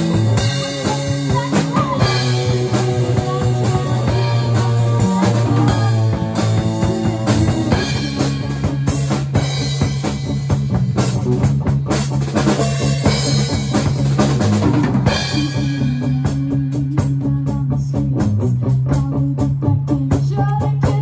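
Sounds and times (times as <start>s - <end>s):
distorted electric guitar: 0.0s - 20.0s
bass guitar: 0.0s - 21.0s
drum kit: 0.0s - 21.0s.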